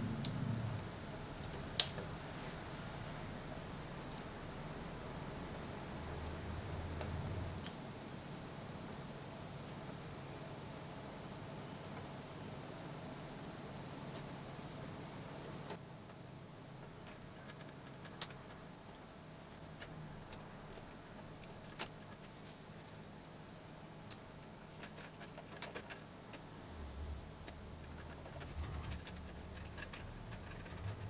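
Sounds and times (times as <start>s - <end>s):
low handling rumble: 0.0s - 4.0s, 26.1s - 31.0s.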